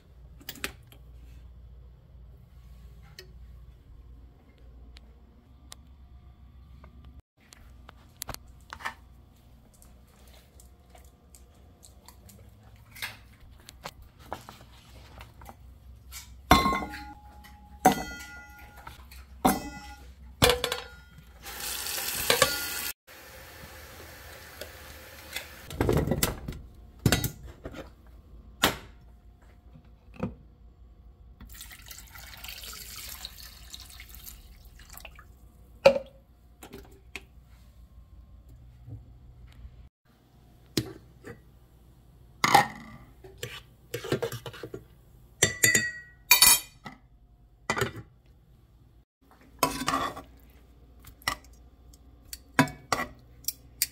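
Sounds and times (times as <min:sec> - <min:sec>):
tap water running into metal bowl: 0:31.4 - 0:35.2.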